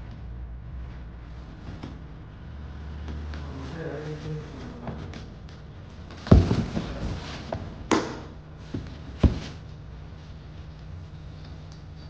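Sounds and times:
heavy thumps: 0:04.8 - 0:09.8
scooter knocking against cardboard box: 0:06.2 - 0:09.6.

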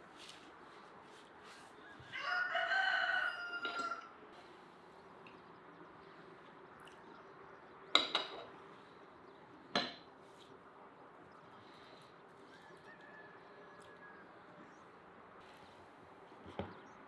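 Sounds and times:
cutlery clinking on plates: 0:03.6 - 0:04.0, 0:07.9 - 0:08.6.

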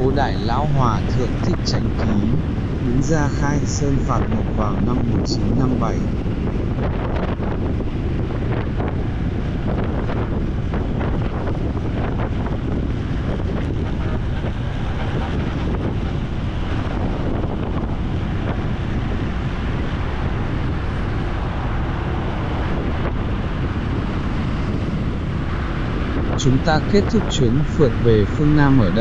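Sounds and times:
road noise: 0:00.0 - 0:06.8, 0:12.6 - 0:29.0
wind rushing over microphone: 0:00.0 - 0:29.0.

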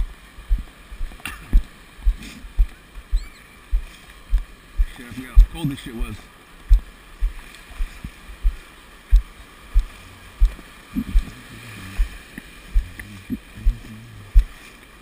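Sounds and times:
dull low paddle thumps: 0:00.0 - 0:06.1, 0:06.7 - 0:14.6
person grunting: 0:12.8 - 0:14.4.

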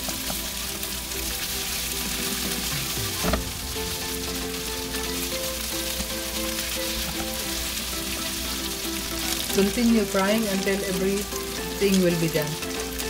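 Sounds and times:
spatula stirring in pan: 0:00.0 - 0:10.5
meat sizzling in oil: 0:00.0 - 0:13.0.

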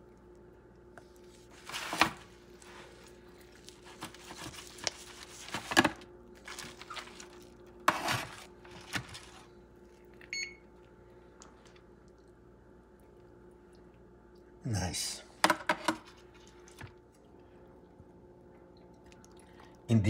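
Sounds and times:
faint steady hum: 0:00.0 - 0:20.0
foil pan crinkling: 0:01.5 - 0:09.6.

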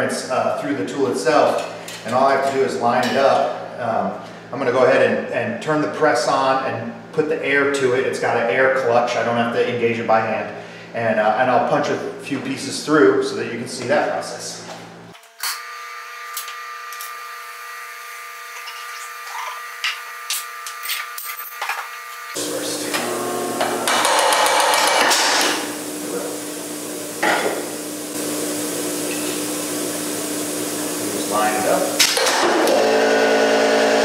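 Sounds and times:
punch press motor humming: 0:22.2 - 0:34.0.

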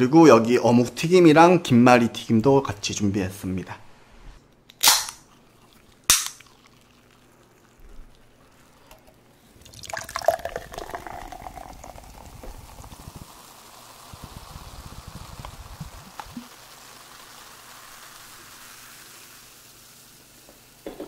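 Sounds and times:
soda can popping open: 0:04.7 - 0:05.3, 0:06.0 - 0:06.8, 0:15.4 - 0:16.6
carbonation fizzing: 0:05.2 - 0:21.0
cola pouring into a glass: 0:05.3 - 0:20.9.

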